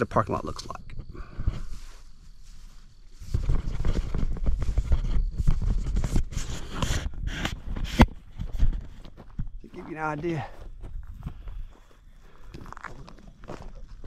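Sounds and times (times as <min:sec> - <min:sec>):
footsteps on gravel: 0:07.7 - 0:14.0.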